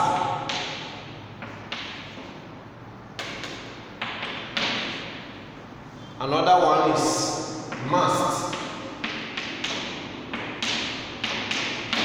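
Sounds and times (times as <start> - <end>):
chalk tapping on chalkboard: 3.2 - 5.2, 7.7 - 12.0.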